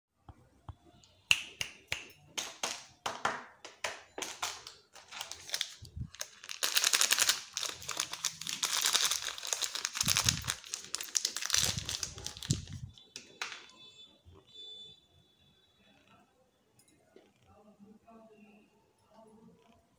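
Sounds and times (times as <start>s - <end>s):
plastic wrapper crinkling: 4.2s - 13.8s.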